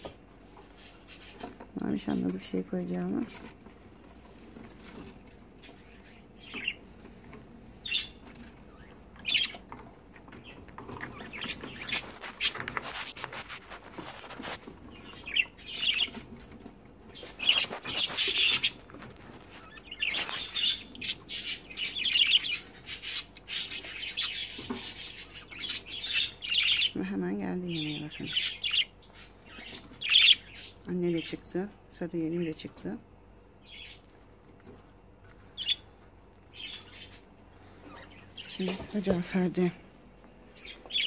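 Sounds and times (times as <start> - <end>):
budgerigars chirping: 5.6 - 6.9, 7.8 - 12.7, 14.8 - 16.4, 17.1 - 27.1, 27.7 - 31.4, 33.6 - 34.1, 35.5 - 38.8, 40.6 - 41.0.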